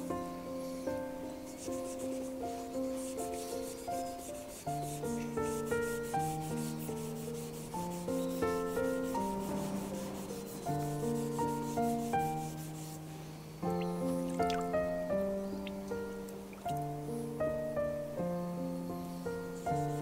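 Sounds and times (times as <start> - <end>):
instrumental background music: 0.0 - 20.0
knife rasping on whetstone: 1.6 - 13.0.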